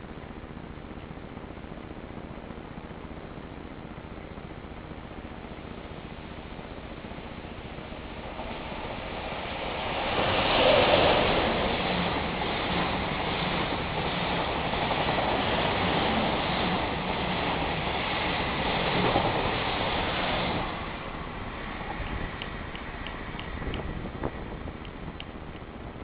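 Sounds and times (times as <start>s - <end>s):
train wheels on rails: 5.9s - 26.0s.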